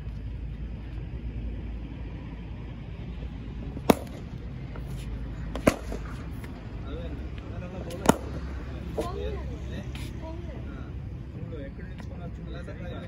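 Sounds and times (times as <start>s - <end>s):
low background rumble: 0.0s - 13.0s
cricket bat striking ball: 3.8s - 4.6s, 5.5s - 6.6s, 7.8s - 9.3s.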